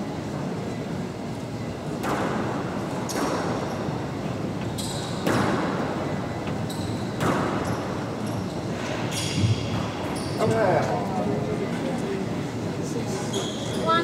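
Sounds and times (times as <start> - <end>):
squash ball cracking off racquets: 5.2 - 5.8, 7.2 - 7.8.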